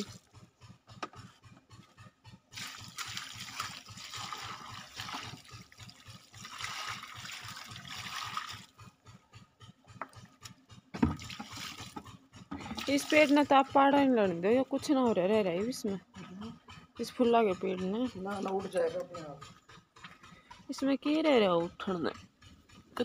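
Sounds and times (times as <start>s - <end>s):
water splashing onto wet soil: 2.6s - 8.7s.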